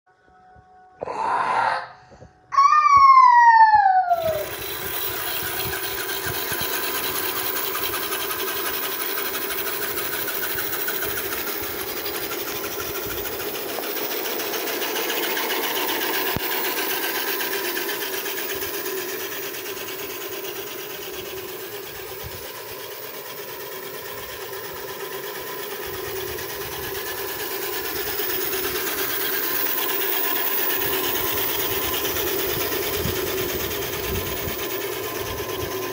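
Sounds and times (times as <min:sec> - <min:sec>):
falling-pitch sound effect: 0:01.0 - 0:05.7
toy truck motor running: 0:03.8 - 0:35.9.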